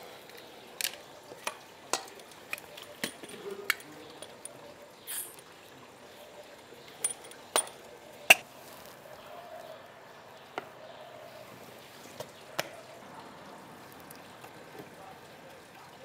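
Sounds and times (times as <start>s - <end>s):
kitchen utensils knocking and clicking: 0.8s - 4.7s, 7.0s - 8.4s.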